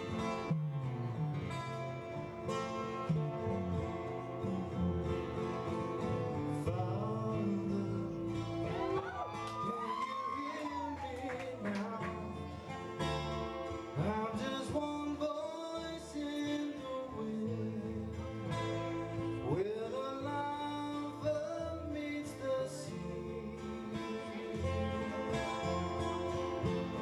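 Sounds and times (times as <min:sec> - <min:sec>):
acoustic guitar strumming: 0:00.0 - 0:27.0
man singing: 0:06.0 - 0:27.0.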